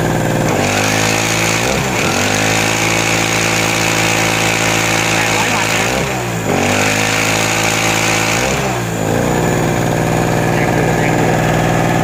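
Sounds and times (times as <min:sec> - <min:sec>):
portable generator engine running: 0:00.0 - 0:12.0.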